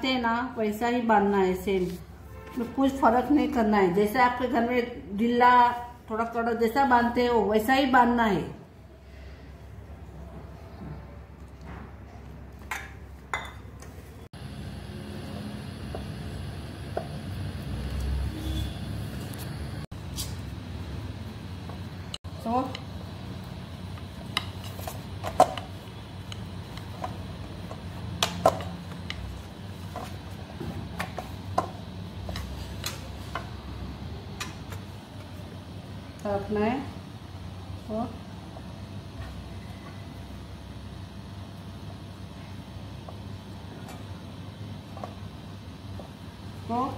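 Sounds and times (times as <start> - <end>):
steady low hum: 13.2 - 46.9.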